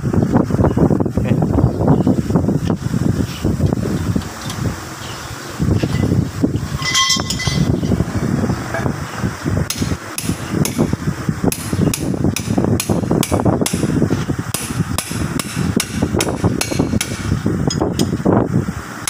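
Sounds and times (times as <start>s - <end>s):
steady low rumble: 0.0s - 19.0s
metal-on-metal strikes: 6.8s - 7.7s.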